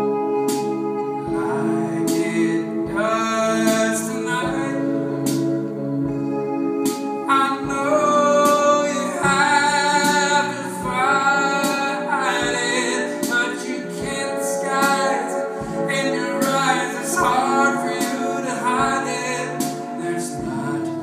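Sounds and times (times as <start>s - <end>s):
electric guitar: 0.0s - 21.0s
man singing into microphone: 1.2s - 6.2s, 7.2s - 21.0s
low thud beat: 7.6s - 13.4s, 14.0s - 15.0s.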